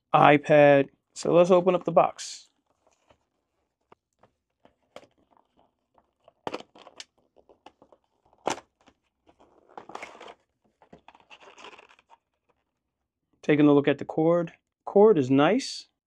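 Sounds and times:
packaging rustle: 4.5 - 12.6.

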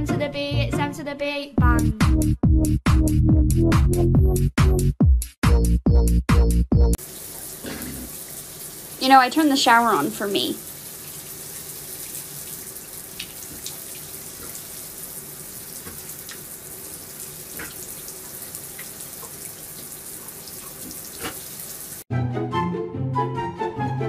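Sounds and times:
faint water splashes: 7.0 - 22.0
shower water running into bathtub: 7.0 - 22.1.

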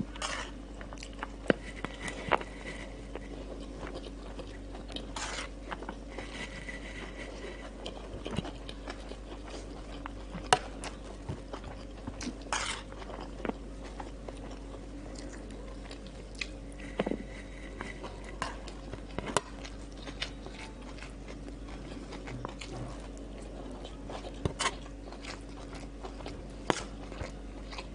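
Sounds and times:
chewing crunchy food: 0.0 - 27.9
low steady hum: 0.0 - 27.9.

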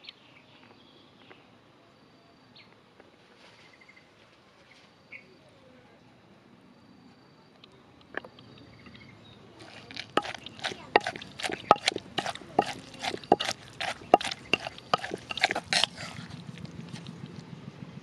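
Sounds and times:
pestle pounding in mortar: 9.6 - 17.1.

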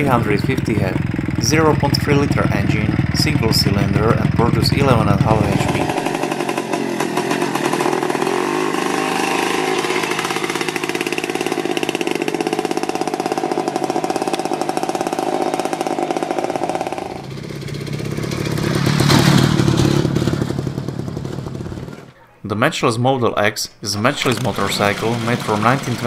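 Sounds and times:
motorcycle two-stroke engine running: 0.0 - 22.1, 24.0 - 26.0.

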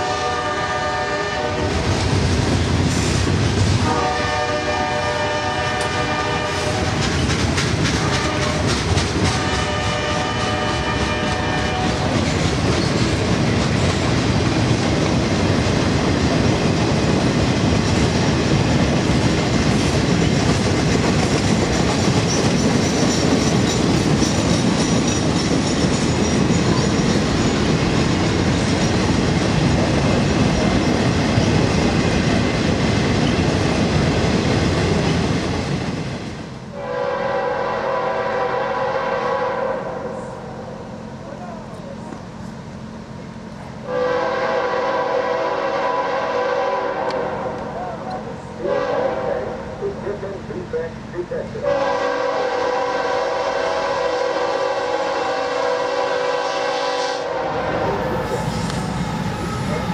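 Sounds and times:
locomotive horn blasts: 0.0 - 1.8, 3.8 - 7.0, 8.0 - 8.7, 9.4 - 12.1, 36.8 - 40.2, 43.8 - 47.6, 48.6 - 49.5, 51.6 - 58.0
train wheels clacking over joints: 6.7 - 15.4, 16.0 - 32.2.

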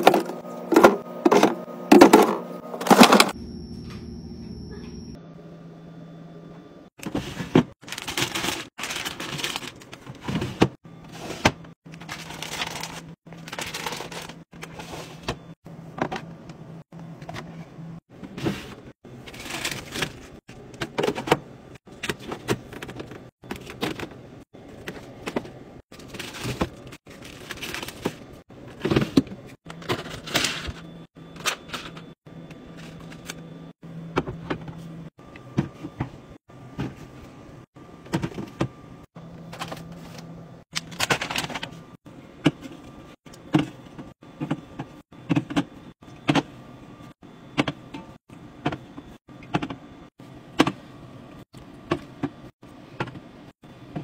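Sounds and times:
packaging rustling: 7.8 - 10.2, 12.0 - 14.4.

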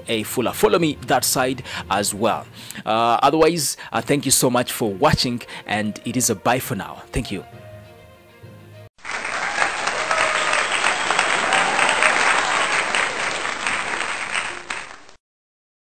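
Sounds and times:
crowd applauding: 9.0 - 15.2.

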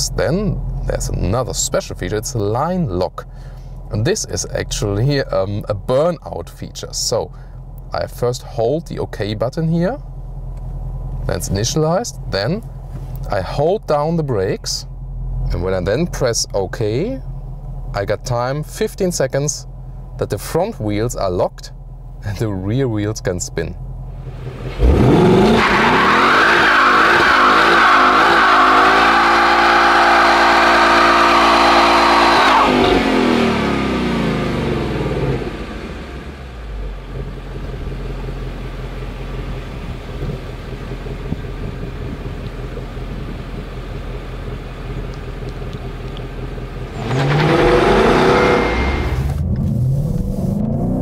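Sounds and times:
car engine revving: 24.1 - 51.0.

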